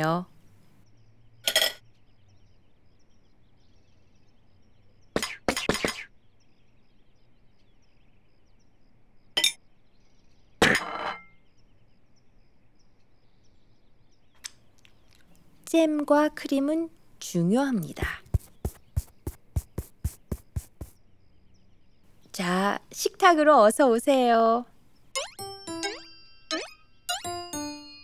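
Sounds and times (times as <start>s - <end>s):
plates clinking on table: 1.5s - 1.8s, 10.6s - 11.3s.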